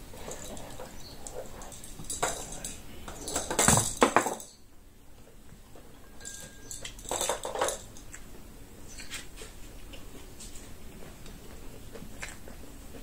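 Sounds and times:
chewing and lip-smacking: 0:09.0 - 0:13.0.

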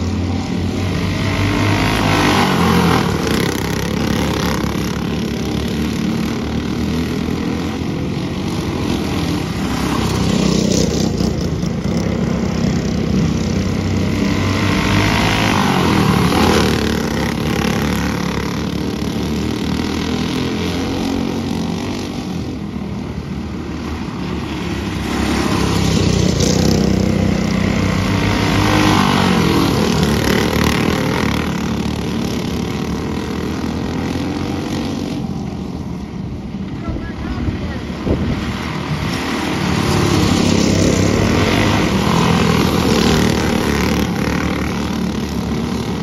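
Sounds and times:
go-kart engines passing: 0:00.0 - 0:46.0.

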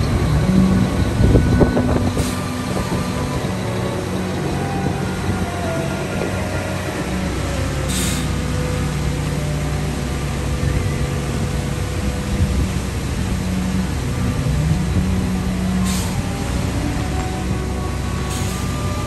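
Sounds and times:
heavy diesel machinery running: 0:00.0 - 0:19.0
short air hisses: 0:07.9 - 0:08.4, 0:15.8 - 0:16.2.

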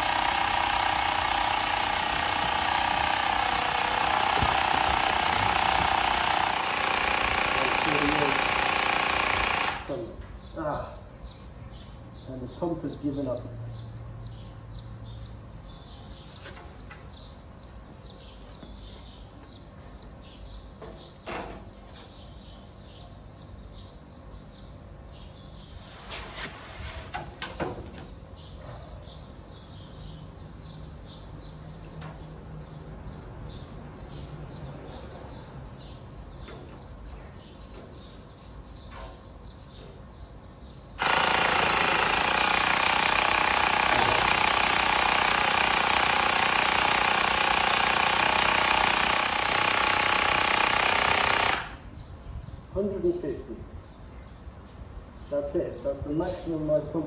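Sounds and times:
electric pump running: 0:00.0 - 0:10.0, 0:41.0 - 0:51.9
faint birdsong: 0:00.0 - 0:57.0.

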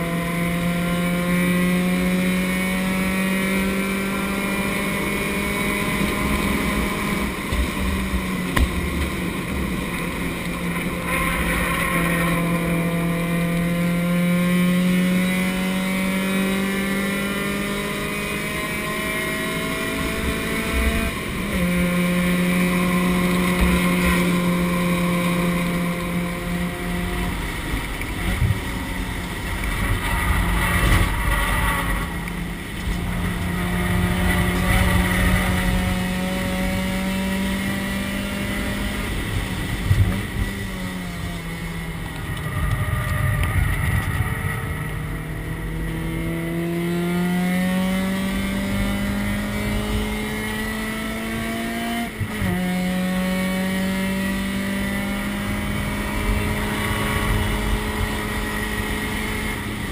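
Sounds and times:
race car engine: 0:00.0 - 0:59.9
road and wind noise: 0:00.0 - 0:59.9.

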